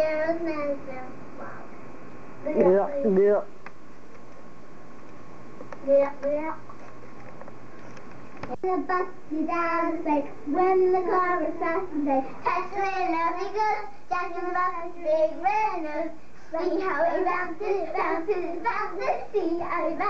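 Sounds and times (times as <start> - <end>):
young girls singing: 8.6 - 20.0.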